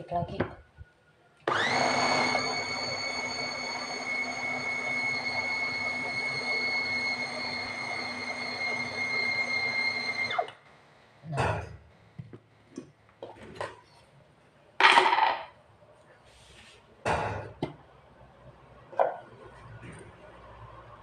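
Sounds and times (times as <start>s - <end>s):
food chopper whining: 1.5s - 10.6s.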